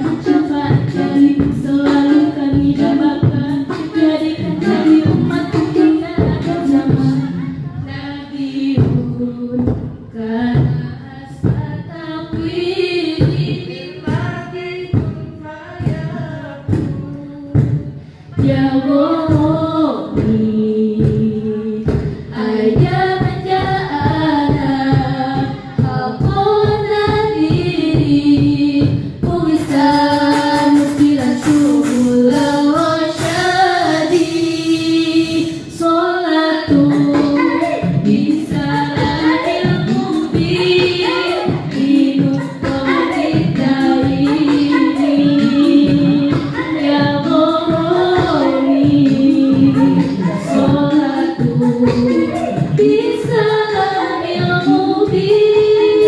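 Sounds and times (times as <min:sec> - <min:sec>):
girls singing in harmony: 0:00.0 - 0:56.0
steady percussive beat: 0:00.0 - 0:56.0.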